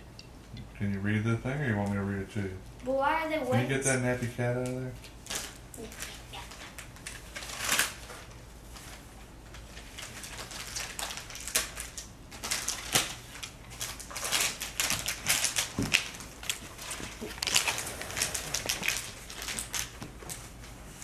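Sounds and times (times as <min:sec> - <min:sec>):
packaging rustling and crinkling: 0:05.0 - 0:21.0.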